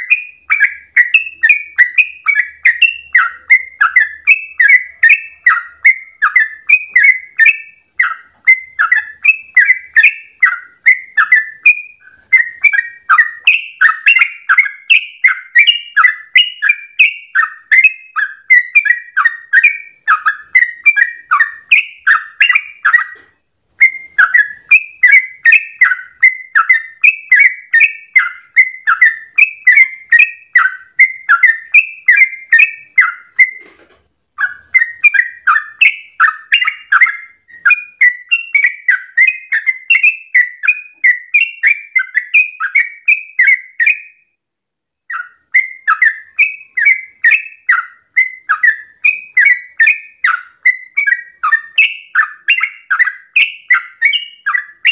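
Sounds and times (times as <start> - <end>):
bird singing rapid chattering song: 0.0 - 33.7, 34.3 - 44.3, 45.1 - 54.9.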